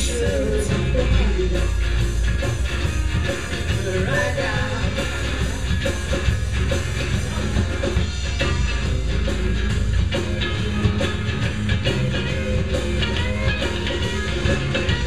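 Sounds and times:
person singing: 0:00.0 - 0:01.8, 0:03.8 - 0:05.1
bass guitar: 0:00.0 - 0:15.0
drums: 0:00.0 - 0:15.0
electric guitars: 0:00.0 - 0:15.0.

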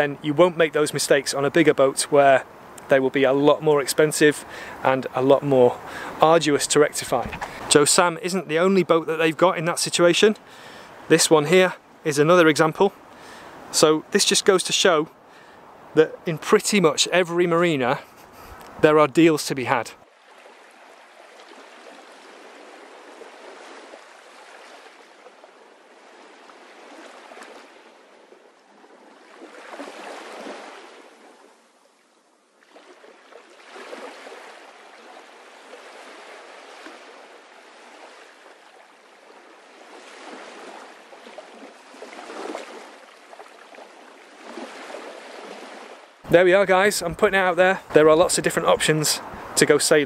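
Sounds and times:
water washing in gentle swells: 0:00.0 - 0:50.0.

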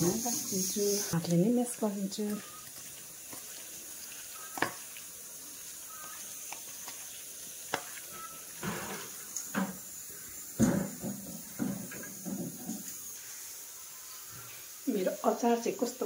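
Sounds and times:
hands mashing wet greens: 0:02.3 - 0:05.1, 0:05.7 - 0:08.8.

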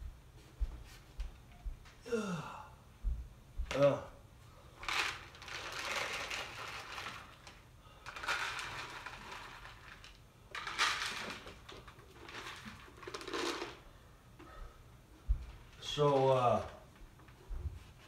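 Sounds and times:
dry kibble pouring into bowls: 0:04.8 - 0:13.8.

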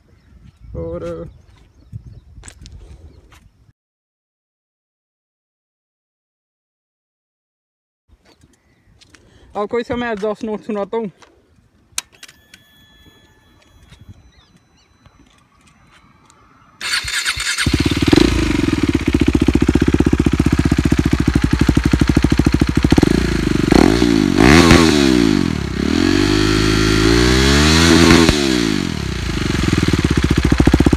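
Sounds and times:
motorcycle engine idling and revving: 0:16.8 - 0:30.9.

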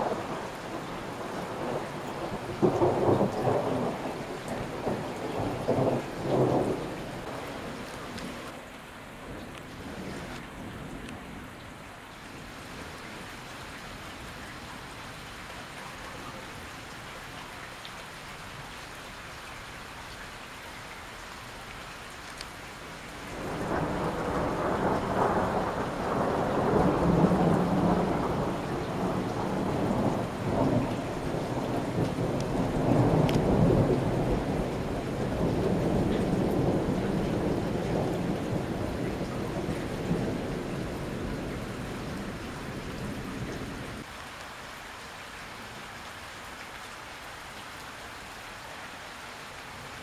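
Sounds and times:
thunder rumbling: 0:00.0 - 0:08.5, 0:23.3 - 0:44.1
rain hiss: 0:00.0 - 0:50.0.

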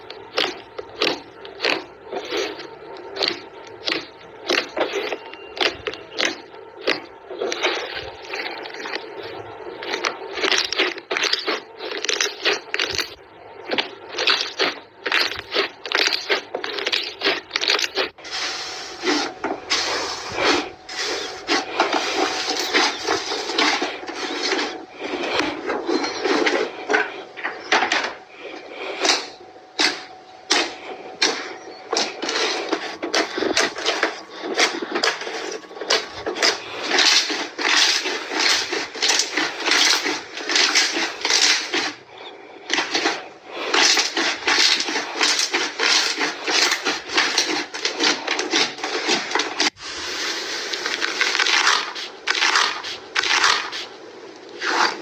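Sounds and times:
slime crackling and popping: 0:09.8 - 0:18.2, 0:29.8 - 0:42.0, 0:50.7 - 0:53.9.

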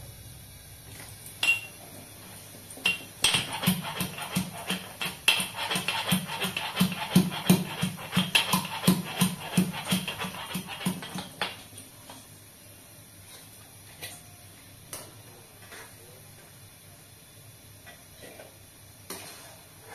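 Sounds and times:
metal pestle pounding in mortar: 0:03.2 - 0:11.2.

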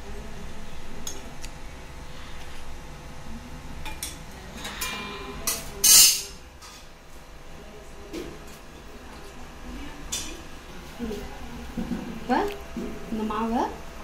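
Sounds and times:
steel utensils clinking: 0:03.9 - 0:06.8.

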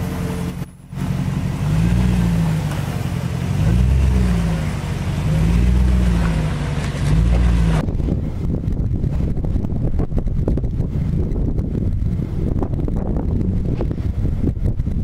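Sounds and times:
engine revving under load: 0:00.0 - 0:08.4.

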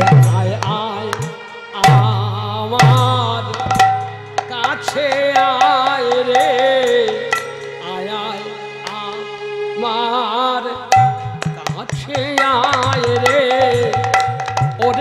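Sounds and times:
person singing: 0:00.0 - 0:15.0
hand drum strokes: 0:02.8 - 0:07.5.

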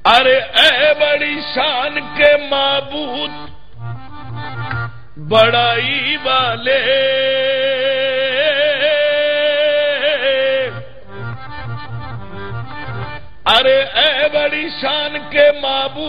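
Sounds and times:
harmonium: 0:00.0 - 0:16.0
man singing long held note: 0:05.2 - 0:10.9.

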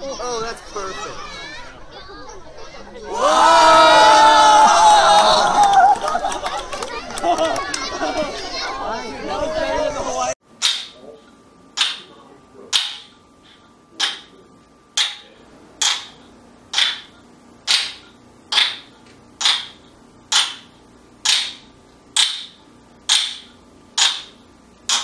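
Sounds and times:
wooden ball clacking: 0:10.6 - 0:11.0, 0:11.8 - 0:12.1, 0:12.7 - 0:14.3, 0:15.0 - 0:25.0.

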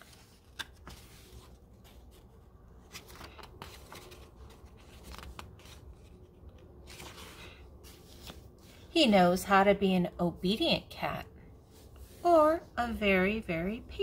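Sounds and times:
book page turning: 0:00.0 - 0:08.9.

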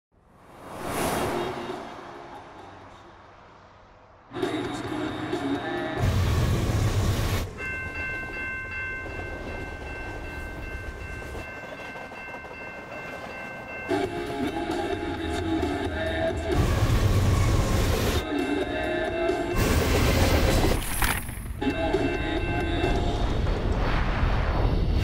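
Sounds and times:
passing vehicle rumble: 0:00.2 - 0:04.4
freight train rolling past: 0:06.3 - 0:18.2.

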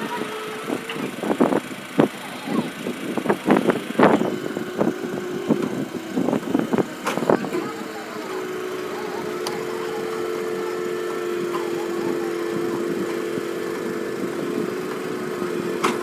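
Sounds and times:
engine humming steadily: 0:00.0 - 0:16.0
short broken voices: 0:06.1 - 0:16.0.

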